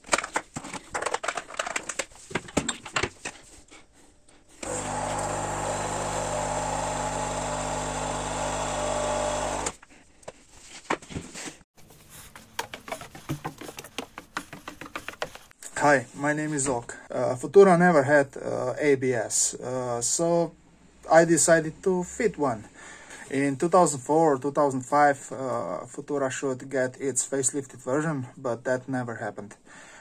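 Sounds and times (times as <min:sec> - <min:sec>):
coffee machine pump buzzing: 0:04.6 - 0:09.8.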